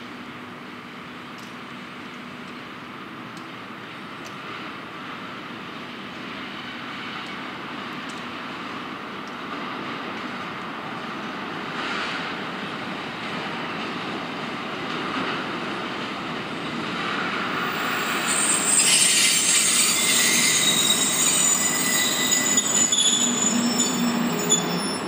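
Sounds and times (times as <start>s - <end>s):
train wheels squealing: 17.6s - 25.0s.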